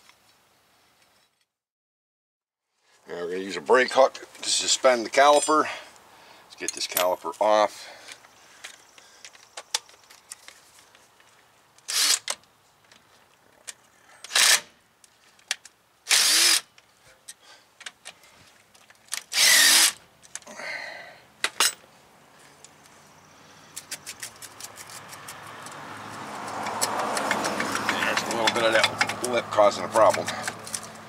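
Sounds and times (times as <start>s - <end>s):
cordless power tool spinning: 11.9s - 12.3s, 16.1s - 16.6s, 19.3s - 20.0s
metal scraping and knocking: 26.6s - 29.4s.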